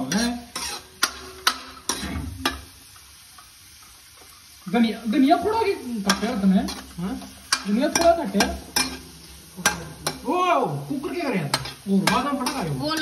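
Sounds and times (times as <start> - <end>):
ladle scraping metal pan: 0.0 - 2.7
onions sizzling in oil: 0.0 - 13.0.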